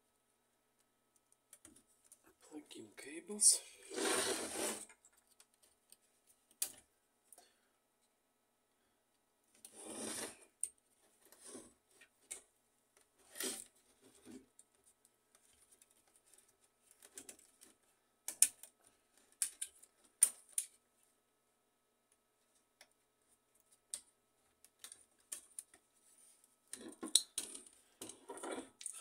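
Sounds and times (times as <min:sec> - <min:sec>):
short rustling scrapes: 0:03.8 - 0:04.9, 0:09.8 - 0:10.4
plastic parts clicking: 0:16.9 - 0:20.8.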